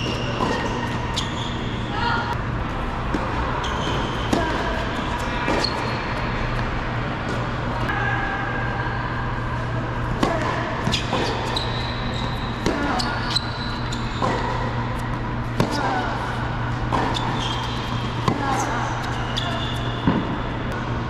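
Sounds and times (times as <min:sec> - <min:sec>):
rackets striking tennis ball: 0:00.0 - 0:01.1, 0:12.2 - 0:16.0, 0:16.8 - 0:19.2, 0:19.8 - 0:20.4
tennis ball bouncing on hard court: 0:00.0 - 0:01.1, 0:12.2 - 0:16.0
steady low hum: 0:00.0 - 0:21.0.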